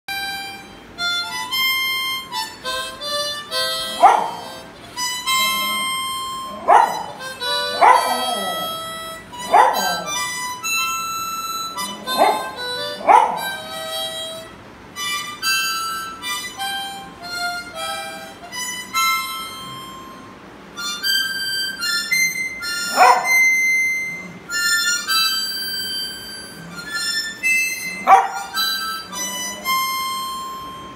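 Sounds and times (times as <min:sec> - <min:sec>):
harmonica playing slow tune: 0:00.1 - 0:30.9
dog howling: 0:03.8 - 0:04.6, 0:05.3 - 0:10.4, 0:11.8 - 0:13.8, 0:22.8 - 0:23.5, 0:27.8 - 0:30.0.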